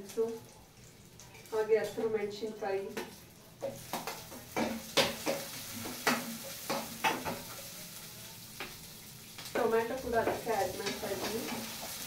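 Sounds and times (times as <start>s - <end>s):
soft oil sizzle: 0.0s - 12.0s
spatula scraping frying pan: 3.6s - 8.0s, 9.9s - 12.0s.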